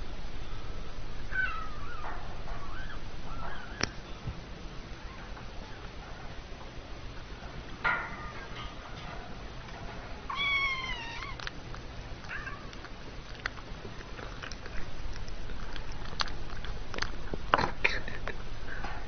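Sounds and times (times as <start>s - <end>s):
kitten meowing: 10.3s - 11.5s.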